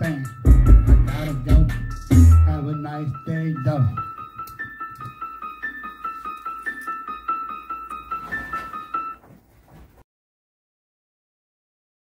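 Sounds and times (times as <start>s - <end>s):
keyboard melody of short notes: 0.0s - 9.2s.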